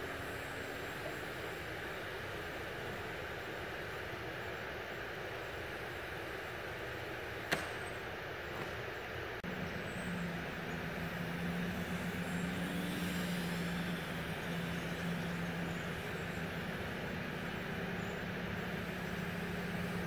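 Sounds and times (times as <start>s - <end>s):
model airplane motor buzzing: 9.5s - 20.0s.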